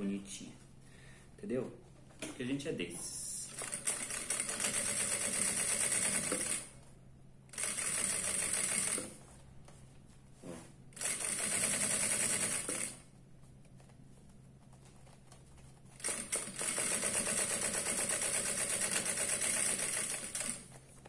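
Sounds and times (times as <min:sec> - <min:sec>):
industrial sewing machine stitching: 0:03.5 - 0:06.7, 0:07.5 - 0:09.1, 0:11.0 - 0:13.0, 0:16.0 - 0:20.7.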